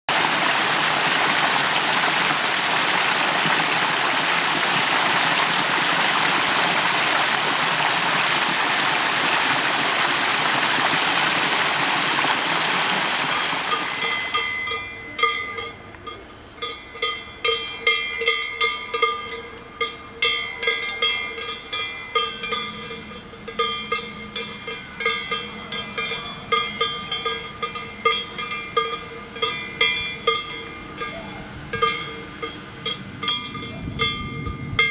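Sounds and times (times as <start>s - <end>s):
stream rushing: 0.1s - 14.7s
ringing bell-like tones: 13.4s - 34.9s.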